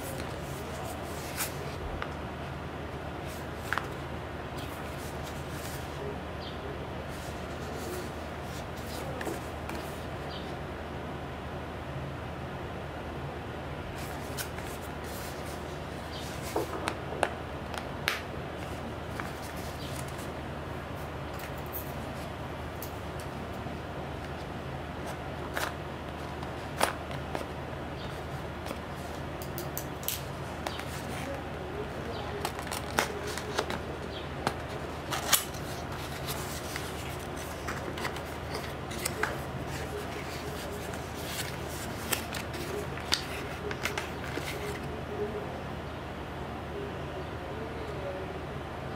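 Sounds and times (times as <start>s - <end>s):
cardboard scratching and rustling: 0.0s - 2.0s, 3.2s - 4.0s, 4.6s - 6.0s, 7.1s - 10.4s, 14.0s - 17.0s, 18.6s - 20.4s, 24.2s - 45.0s
steady low hum: 0.0s - 48.9s
paper crackle: 18.6s - 20.4s, 24.2s - 44.9s
cardboard box rustling: 30.3s - 44.9s.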